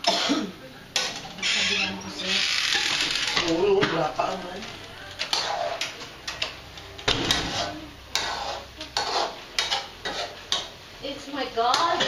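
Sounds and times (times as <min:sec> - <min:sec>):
metal ladle scraping steel wok: 0:05.3 - 0:05.8, 0:07.2 - 0:10.7.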